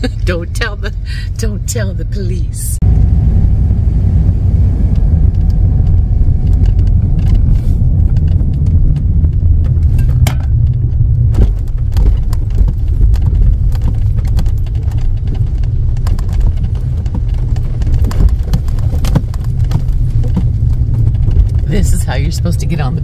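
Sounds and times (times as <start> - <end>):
car cabin low rumble: 0.0 - 23.0
knocks and rattles: 4.9 - 22.8.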